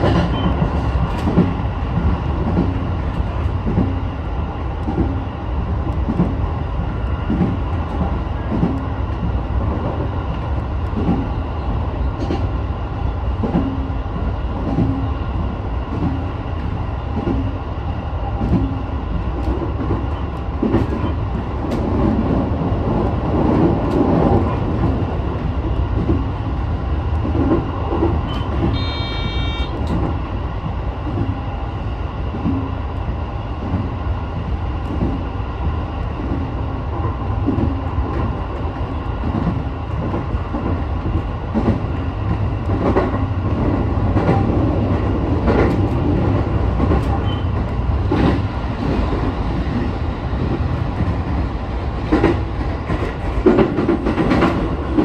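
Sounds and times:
electric train running rumble: 0.0 - 55.0
short electronic beep: 28.3 - 29.7.

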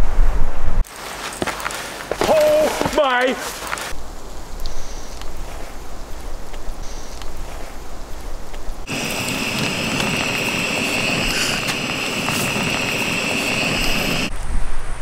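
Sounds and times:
steady high whine: 8.8 - 14.3
fish sizzling in hot oil: 8.9 - 14.3.

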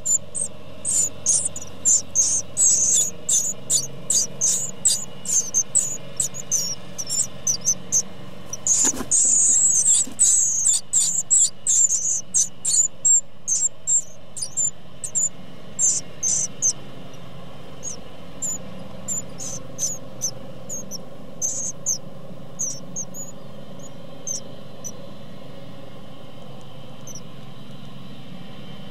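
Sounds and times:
nestlings cheeping: 0.0 - 25.2, 26.4 - 27.3.

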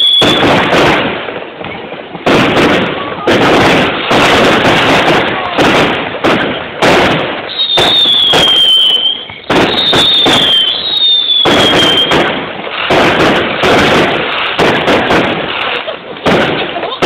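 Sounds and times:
falling firework whistles: 0.0 - 0.7, 7.4 - 12.4
fireworks bangs and crackling: 0.0 - 17.0.

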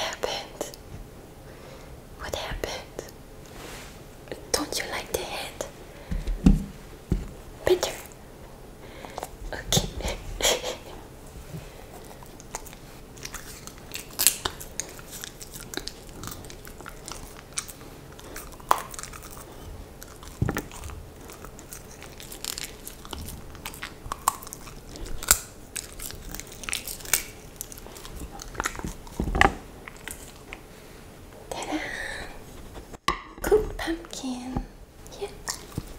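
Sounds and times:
dog chewing pumpkin: 11.6 - 30.6, 35.4 - 35.9.

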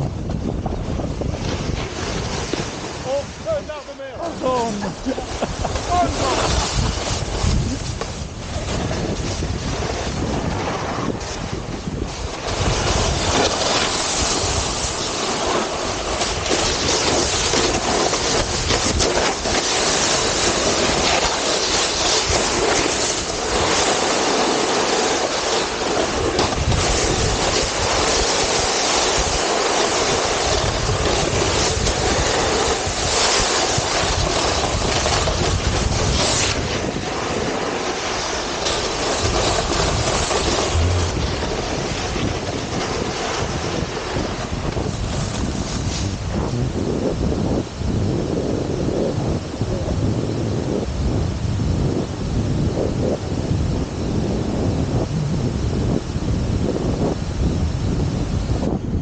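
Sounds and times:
wind buffeting microphone: 0.0 - 24.0, 25.6 - 59.0
snowboard scraping over snow: 0.0 - 58.8.

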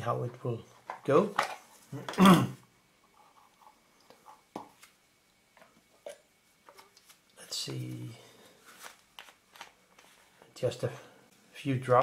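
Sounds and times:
man clearing throat: 1.9 - 2.6.

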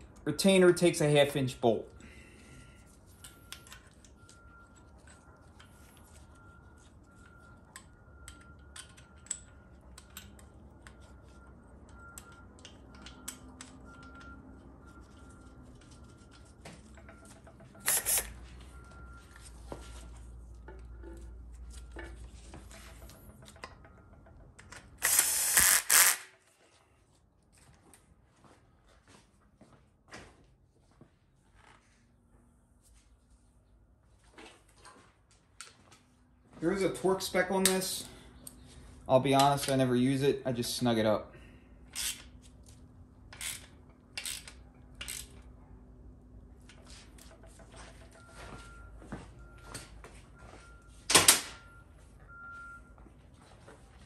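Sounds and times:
metal parts clicking: 41.9 - 42.3, 43.3 - 45.4.

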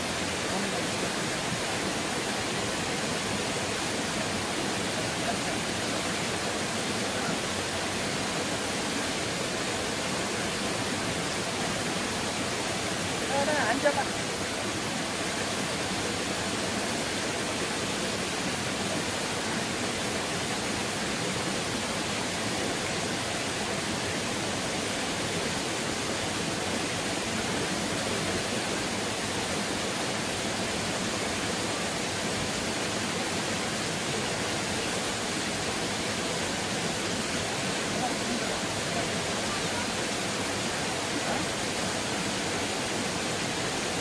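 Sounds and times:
stream flowing over rocks: 0.0 - 44.0.

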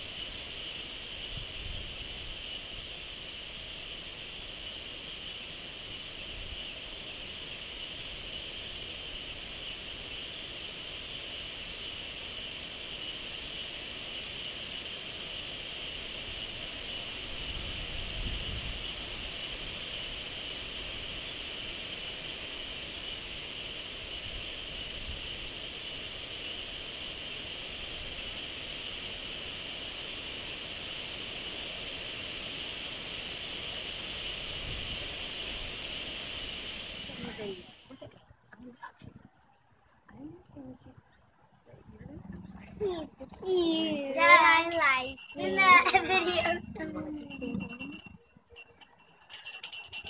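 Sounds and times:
night insects chorus: 0.0 - 50.0
low rumble: 40.1 - 43.5.

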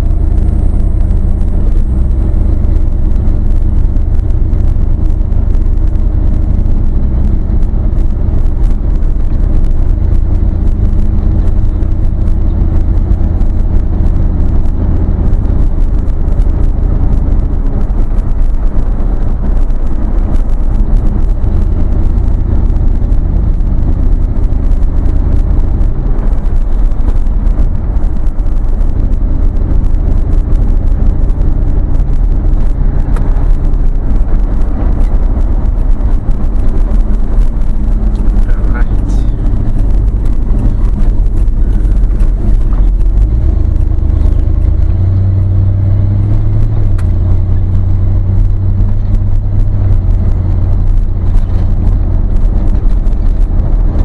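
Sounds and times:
vehicle engine rumbling: 0.0 - 54.0.

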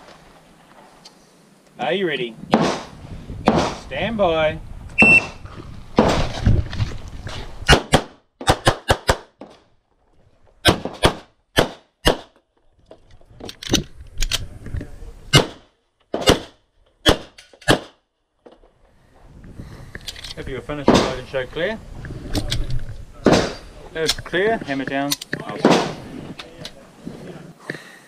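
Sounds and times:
pistol shots: 2.5 - 2.9, 7.7 - 9.3, 10.7 - 12.3, 15.3 - 18.0.

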